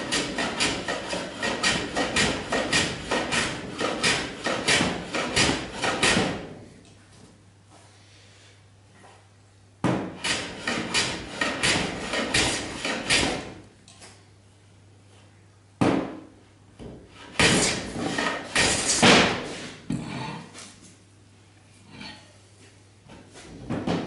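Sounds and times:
hand plane strokes on wood: 0.0s - 6.4s, 10.1s - 13.5s, 17.1s - 19.8s
knocks and scrapes: 0.0s - 6.5s, 9.9s - 13.6s, 16.8s - 19.8s.

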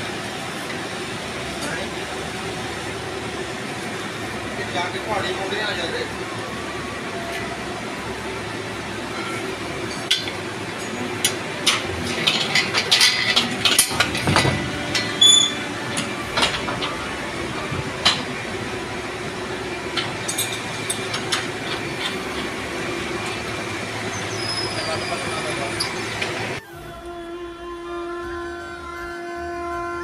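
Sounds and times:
steady machine hum: 0.0s - 30.0s
spanner clinking on steel: 9.9s - 16.9s.

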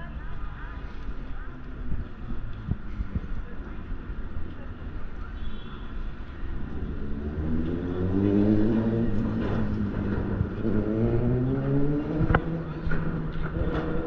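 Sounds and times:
traffic noise: 0.0s - 14.0s
vehicle engine pulling away: 6.5s - 14.0s.

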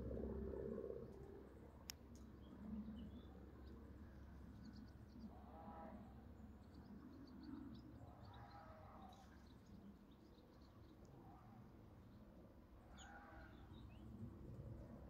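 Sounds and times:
faint drawn-out calls: 8.0s - 9.4s, 12.8s - 13.9s.

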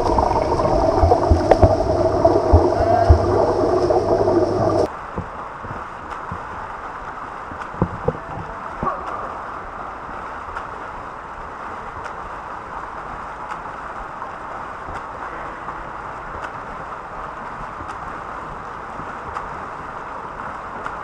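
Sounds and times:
swimmer splashing water: 0.0s - 4.9s.

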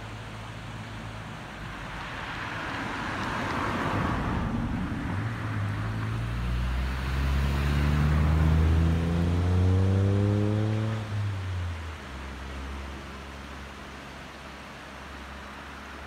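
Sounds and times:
road noise: 0.0s - 16.0s
engine accelerating: 5.6s - 11.5s.

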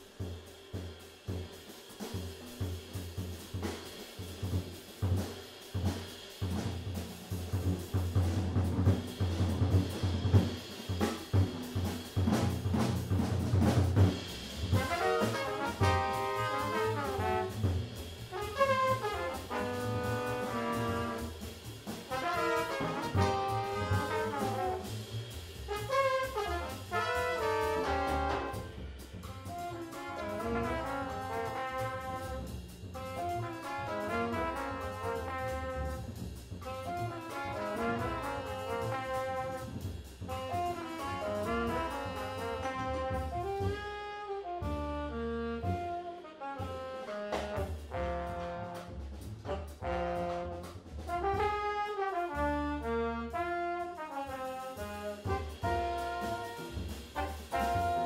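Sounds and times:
bass: 0.0s - 58.0s
drums: 0.0s - 58.0s
horns playing melodic lines: 14.8s - 21.4s, 22.1s - 24.9s, 25.7s - 28.8s, 29.5s - 32.4s, 33.0s - 36.1s, 36.7s - 39.7s, 40.3s - 58.0s.

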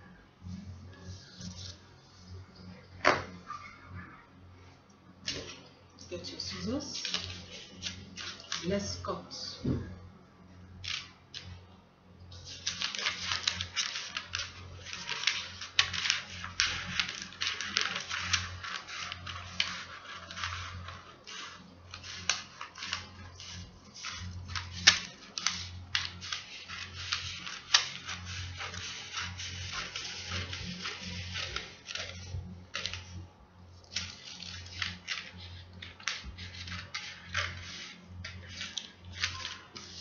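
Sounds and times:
paper crackle: 6.2s - 9.0s, 10.8s - 11.5s, 12.3s - 40.0s
scissors snipping paper: 12.6s - 32.2s, 34.0s - 40.0s.

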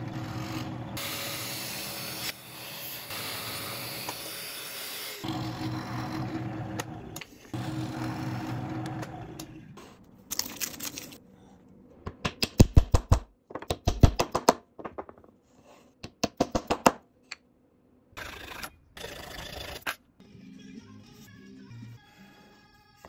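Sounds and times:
drill press motor running: 7.6s - 9.5s.

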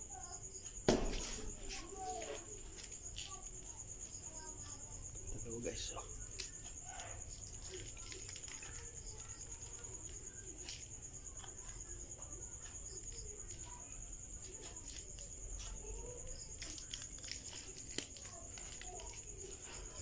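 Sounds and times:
cricket trilling: 0.0s - 20.0s.

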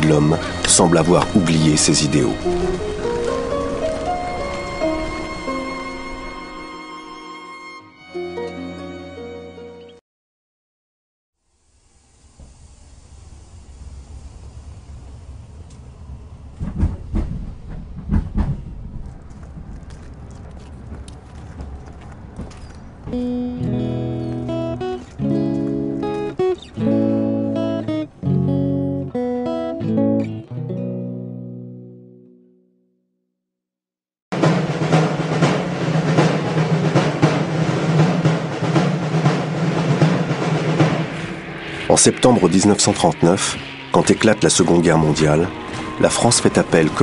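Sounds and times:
train rumbling: 0.0s - 7.2s, 12.0s - 28.2s, 34.4s - 47.0s
heavy train clanks: 15.7s - 23.8s, 34.4s - 47.0s.

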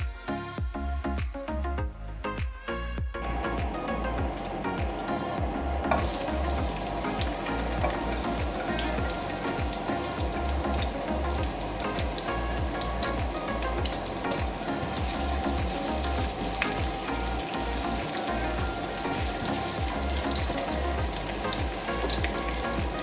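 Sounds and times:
shallots sizzling in hot oil: 5.9s - 23.0s.

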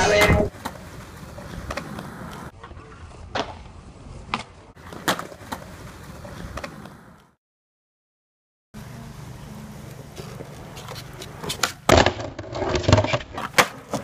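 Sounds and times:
skateboard wheels rolling on concrete: 0.0s - 7.4s, 8.8s - 14.0s
skateboard clacking on ground: 10.2s - 14.0s.

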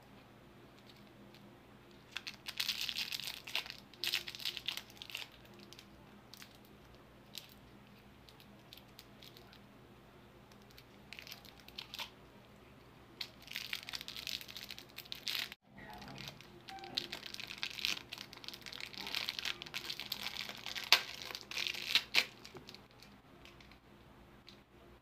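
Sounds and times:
plastic wrapper crinkling: 1.9s - 7.6s, 8.2s - 9.6s, 10.5s - 12.2s, 13.2s - 23.8s.

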